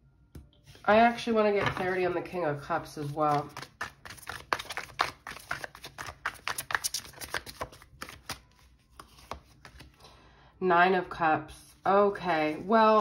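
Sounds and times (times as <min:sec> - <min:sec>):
cards being shuffled: 0:02.9 - 0:10.0.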